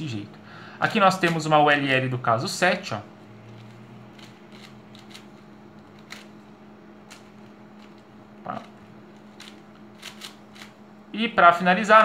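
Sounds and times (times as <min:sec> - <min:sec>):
steady low hum: 0:00.0 - 0:12.0
speed cube layers clicking: 0:04.2 - 0:05.2, 0:09.4 - 0:10.7.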